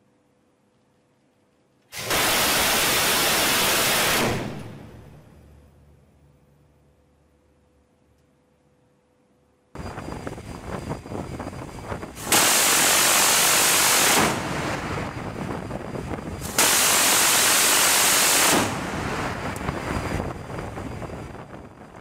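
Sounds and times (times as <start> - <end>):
rotary cannon firing bursts: 2.0 - 5.1, 12.2 - 15.5, 16.4 - 19.5
wind on microphone: 9.8 - 22.0.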